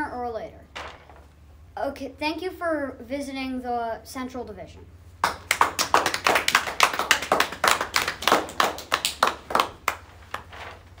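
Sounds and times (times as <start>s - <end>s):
hand clapping applause: 5.2s - 10.5s.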